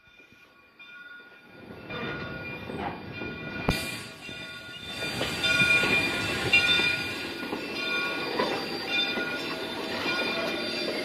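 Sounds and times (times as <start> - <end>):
train wheels clattering over rails: 1.7 - 11.0
steel wheels squealing on track: 3.6 - 11.0.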